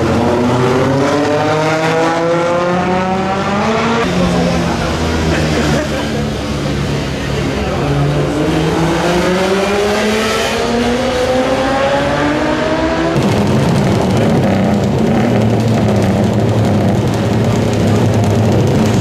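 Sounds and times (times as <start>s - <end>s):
motorcycles accelerating hard: 0.0s - 19.0s
many motorcycle engines idling: 4.0s - 8.6s, 13.2s - 19.0s.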